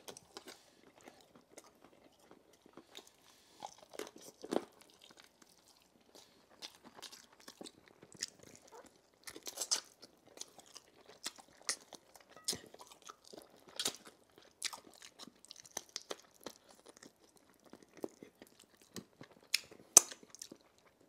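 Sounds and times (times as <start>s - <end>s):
chewing chicken: 0.0s - 21.0s.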